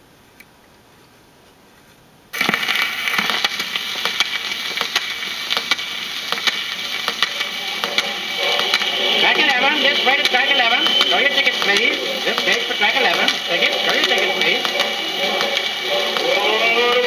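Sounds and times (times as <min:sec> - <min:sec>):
record hiss and crackle: 0:00.0 - 0:17.0
record stylus clicks: 0:02.4 - 0:08.9.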